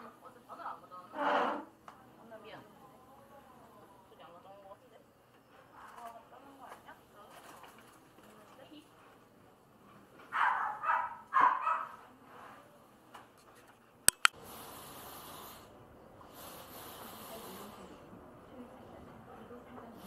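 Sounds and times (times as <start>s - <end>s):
puppy barking: 10.3s - 12.0s
sharp clicks: 14.1s - 14.4s.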